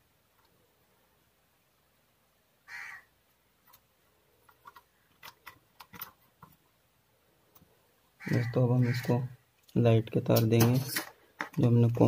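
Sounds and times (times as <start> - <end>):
wires twisting clicks and rustles: 3.6 - 6.8, 8.3 - 12.0.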